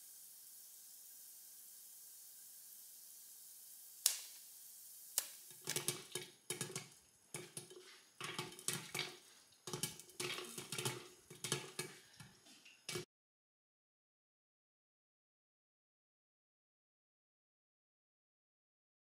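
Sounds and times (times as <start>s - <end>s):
oil sizzling in a pan: 0.0s - 13.1s
popcorn popping: 4.0s - 4.4s, 5.2s - 13.1s.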